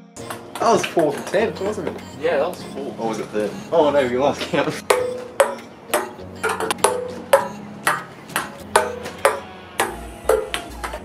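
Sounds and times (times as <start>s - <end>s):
ping pong ball bouncing on wood: 0.2s - 2.0s, 4.9s - 11.0s.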